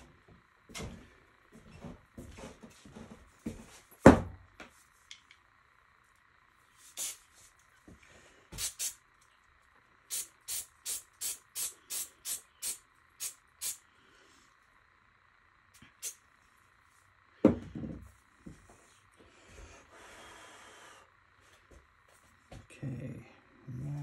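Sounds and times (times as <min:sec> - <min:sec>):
spray paint can hissing: 0:06.8 - 0:07.3, 0:08.5 - 0:09.0, 0:10.1 - 0:13.8, 0:16.0 - 0:16.2.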